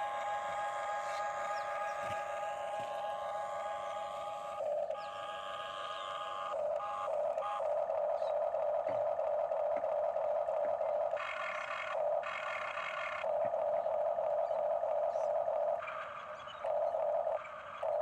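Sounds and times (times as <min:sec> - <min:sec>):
toy excavator motors whining: 0:00.0 - 0:13.3.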